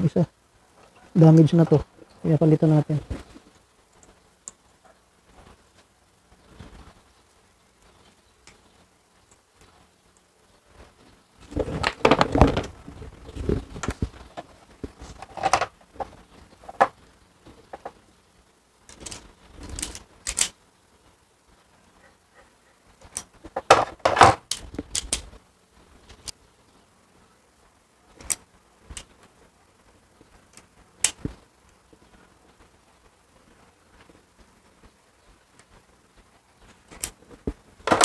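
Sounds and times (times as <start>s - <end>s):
hand tools clicking and clattering: 15.1s - 16.9s.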